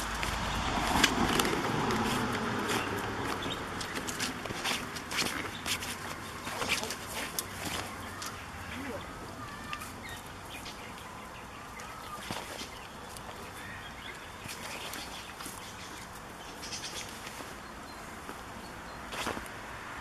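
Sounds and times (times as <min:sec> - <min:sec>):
goats tugging at cloth: 0:00.0 - 0:08.4, 0:12.1 - 0:13.6
faint bird calls: 0:06.4 - 0:18.0.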